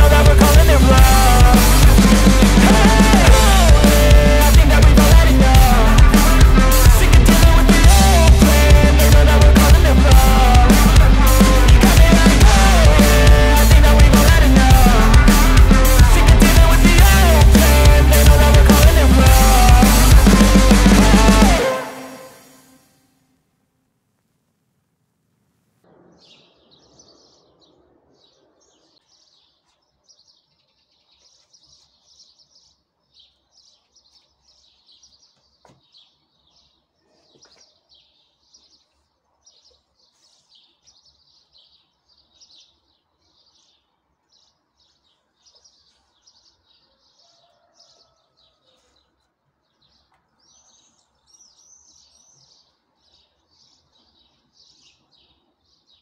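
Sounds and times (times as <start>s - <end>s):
small birds chirping: 25.9s - 56.0s.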